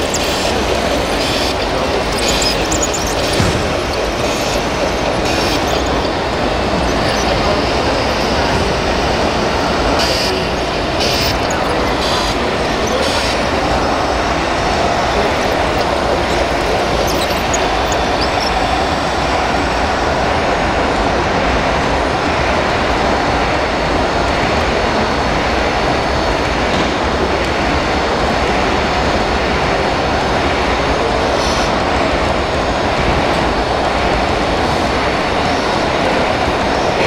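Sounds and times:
mechanical clatter: 0.0s - 19.8s.

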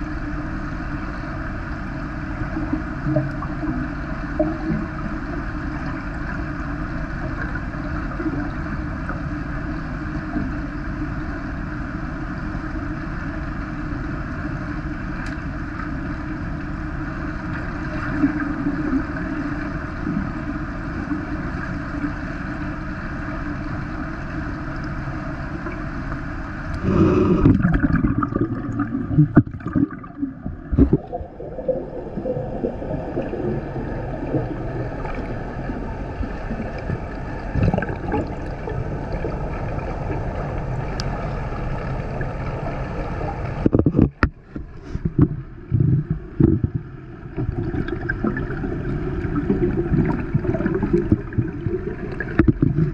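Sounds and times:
underwater rumble: 0.0s - 52.9s
water bubbling: 26.8s - 42.7s, 45.2s - 52.9s.

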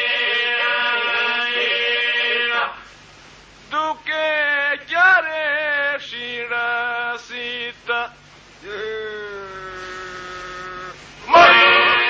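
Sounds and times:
men singing polyphonic song: 3.7s - 12.0s
solo male voice holding notes: 8.6s - 11.9s.

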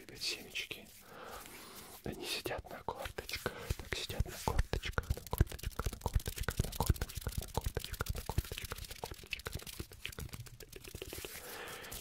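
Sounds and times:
fingers clicking and crackling: 4.5s - 11.4s.

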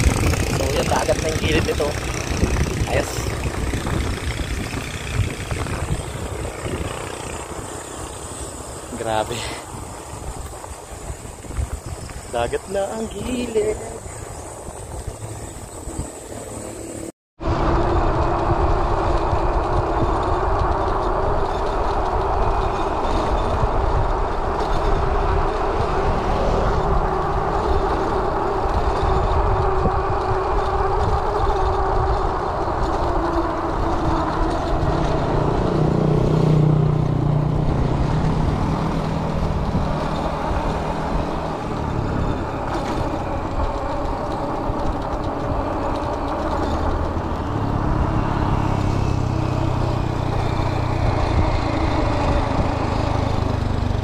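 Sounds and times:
humming drone: 0.0s - 54.0s
tyres rumbling on road: 0.0s - 54.0s
wind rushing over microphone: 0.0s - 54.0s.

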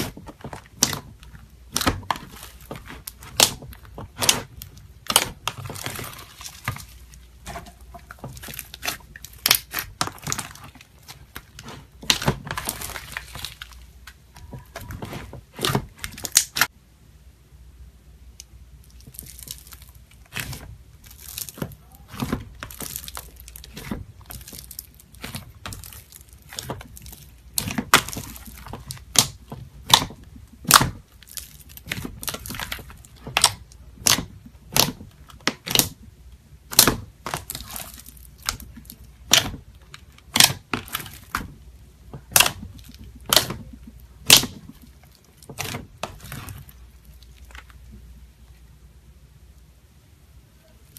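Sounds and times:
slime crackling and crunching: 0.0s - 16.7s, 18.4s - 48.2s
sharp snap of slime: 40.3s - 41.4s.

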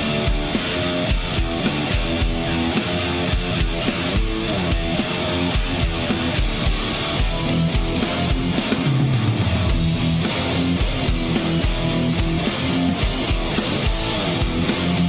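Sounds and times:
rock music: 0.0s - 15.0s.

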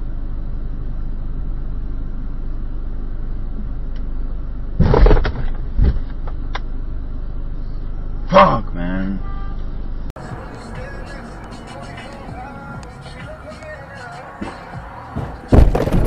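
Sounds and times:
car engine rumble: 0.0s - 16.0s
car bumping thud: 14.4s - 16.0s.

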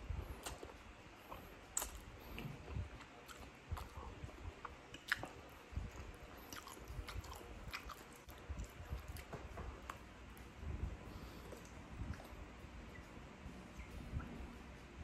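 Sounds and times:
chewing and slurping noodles: 0.4s - 10.0s
wet mouth clicks and smacks: 1.8s - 2.1s.

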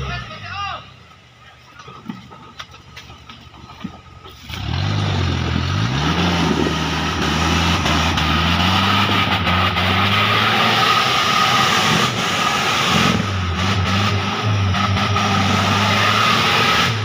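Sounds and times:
engine revving hard: 4.5s - 17.0s.

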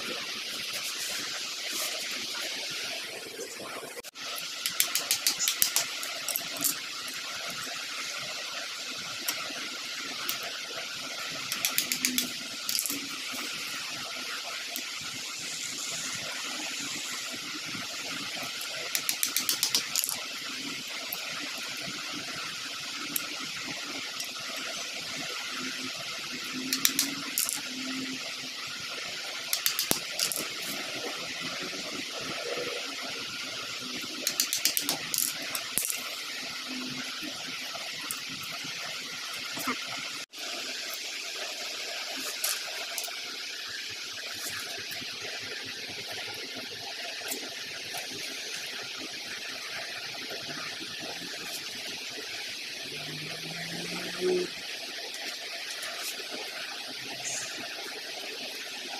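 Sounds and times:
screwdriver tapping wooden sticks: 4.6s - 6.7s, 11.5s - 12.9s, 19.0s - 20.0s, 26.7s - 27.2s, 29.5s - 30.4s, 34.2s - 35.1s
steady hiss: 15.0s - 21.2s.

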